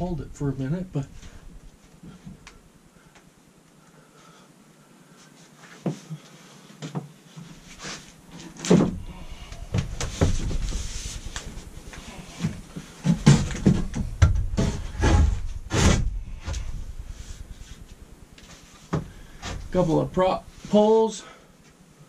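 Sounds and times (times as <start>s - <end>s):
scraping and rustling: 7.3s - 20.9s
wooden knocks and thumps: 8.6s - 16.8s.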